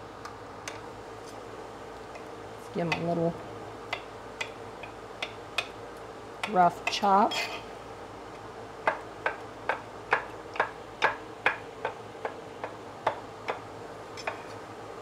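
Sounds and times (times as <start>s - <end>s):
knife chopping on wooden board: 8.8s - 13.6s.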